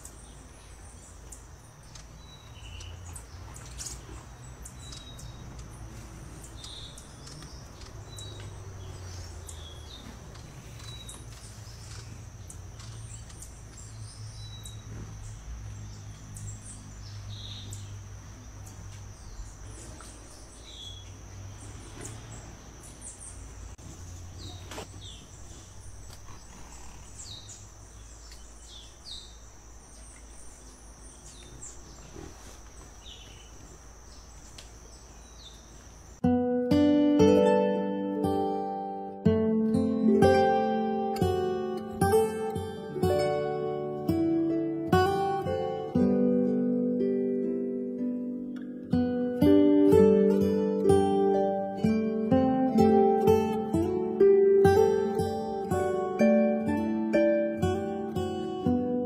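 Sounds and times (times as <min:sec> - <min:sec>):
high bird chirps: 0:00.0 - 0:23.5.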